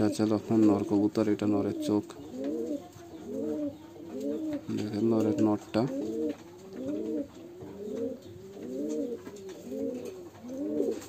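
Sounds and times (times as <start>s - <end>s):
pigeon cooing: 0.0s - 11.0s.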